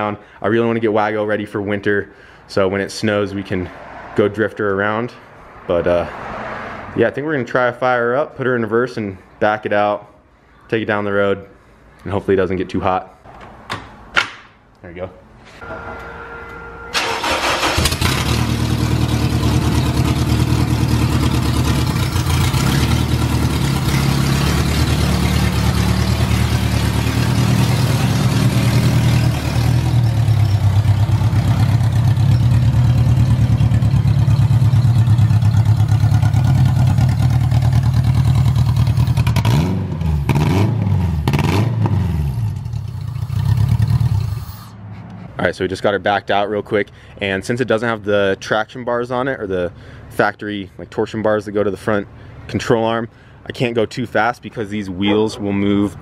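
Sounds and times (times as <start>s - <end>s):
car engine starting and revving: 16.9s - 45.2s.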